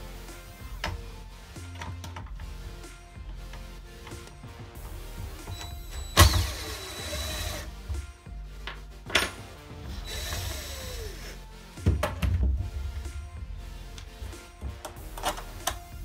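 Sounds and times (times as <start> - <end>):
background music: 0.0 - 16.0
cordless drill running: 6.0 - 7.7, 9.9 - 11.4.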